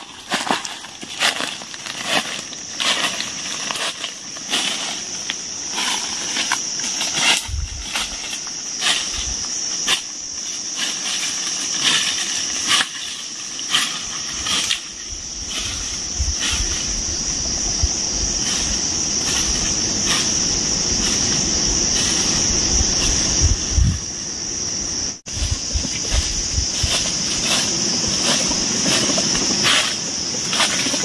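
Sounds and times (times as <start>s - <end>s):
footsteps crunching dry leaves: 0.0s - 17.4s, 25.2s - 31.0s
high-pitched insect drone: 0.0s - 31.0s.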